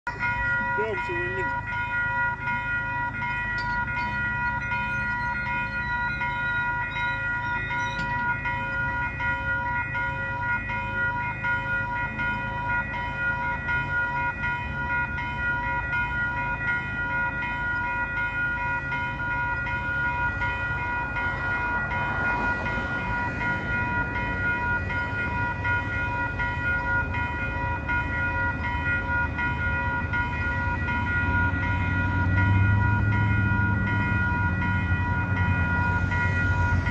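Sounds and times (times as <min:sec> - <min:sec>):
level crossing warning bells: 0:00.0 - 0:36.9.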